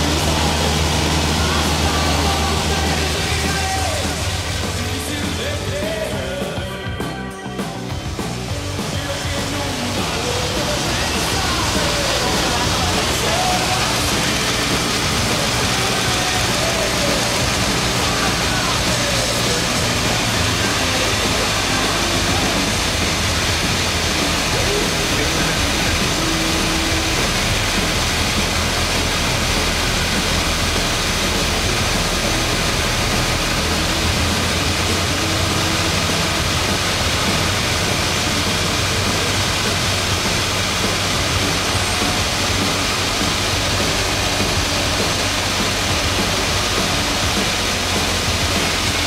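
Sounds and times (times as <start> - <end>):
airplane engine droning in flight: 0.0 - 6.0, 7.9 - 49.0
air rushing over airframe: 0.0 - 6.2, 7.6 - 49.0.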